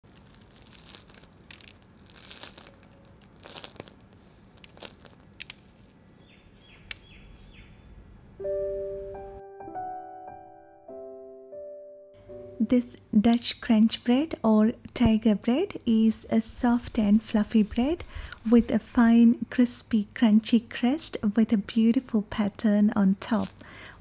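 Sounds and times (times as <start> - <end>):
bread crust crackling: 0.0 - 6.0, 23.2 - 23.8
soft piano tune: 8.4 - 13.2.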